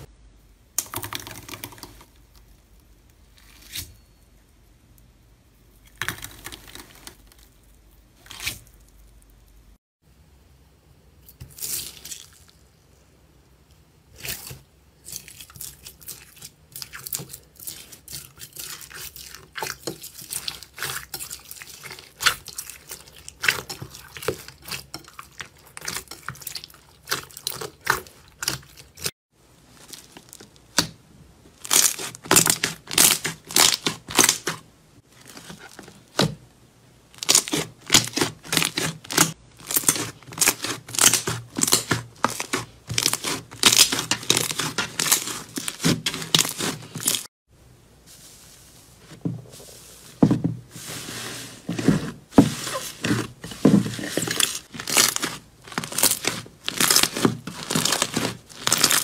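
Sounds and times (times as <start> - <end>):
slime crackling: 29.7 - 36.3, 37.1 - 47.3, 51.8 - 59.0.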